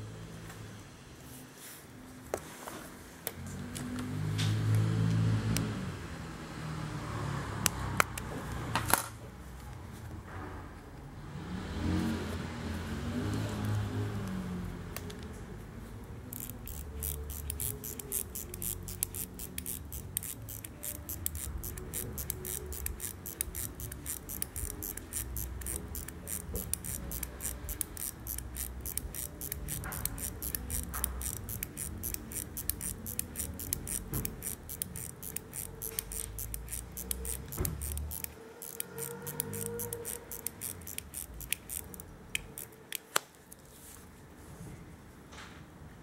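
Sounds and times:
watch ticking: 0:16.3 - 0:42.8.

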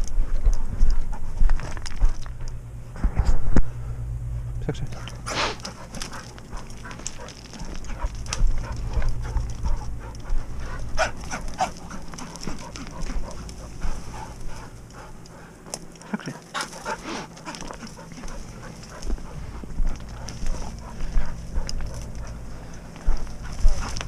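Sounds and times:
footsteps on stony ground: 0:00.0 - 0:03.5, 0:04.9 - 0:24.0
dry brush crackling: 0:04.8 - 0:24.0
dog panting: 0:04.9 - 0:24.0.

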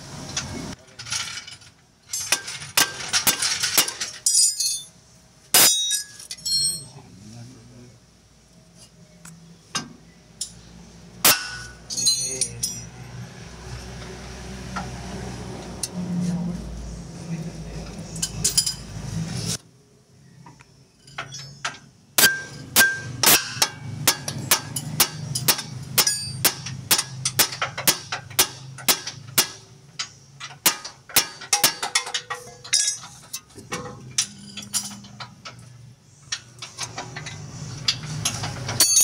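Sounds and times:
hammer clanging on metal: 0:21.1 - 0:35.6, 0:36.4 - 0:39.0.

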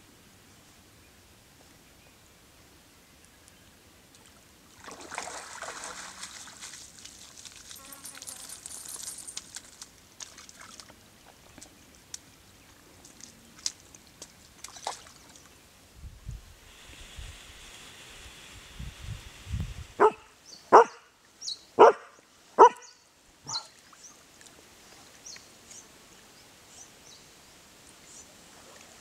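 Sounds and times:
dog splashing through water: 0:04.8 - 0:11.8, 0:13.0 - 0:15.5.

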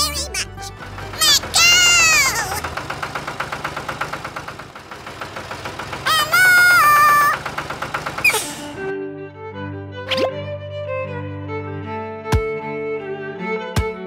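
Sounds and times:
tractor engine putt-putting: 0:00.0 - 0:08.9.

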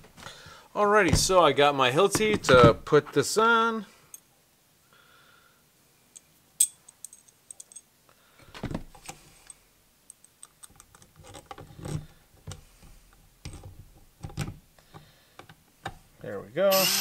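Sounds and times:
small hard parts clicking: 0:08.9 - 0:16.0
cordless drill driving screws: 0:16.7 - 0:17.0.

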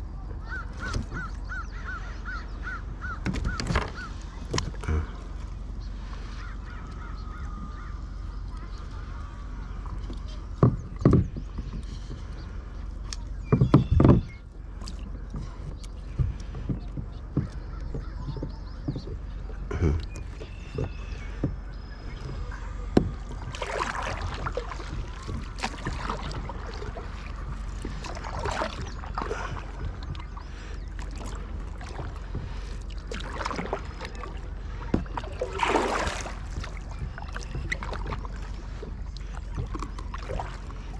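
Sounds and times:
low steady rumble: 0:00.0 - 0:40.9
paddle swishing and dripping water: 0:00.2 - 0:40.9.

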